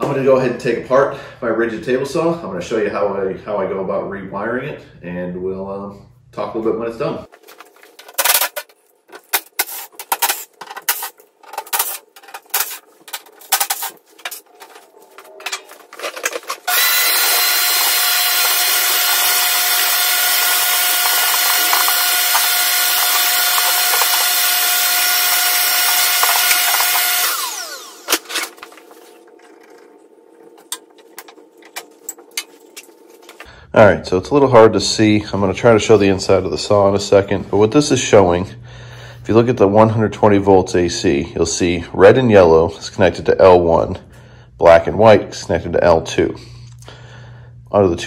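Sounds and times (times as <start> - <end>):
small electric motor whining: 16.6 - 29.4
cordless drill driving screws: 16.7 - 28.2.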